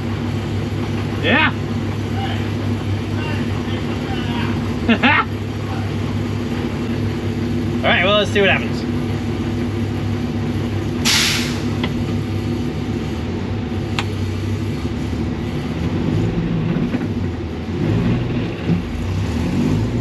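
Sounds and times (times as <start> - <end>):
car engine idling: 0.0 - 19.1
short hiss: 11.0 - 11.7.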